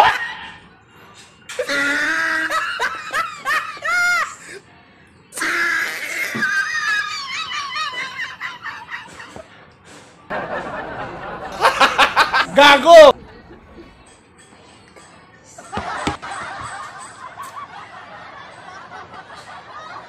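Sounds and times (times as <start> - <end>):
woman laughing: 6.3 - 9.4.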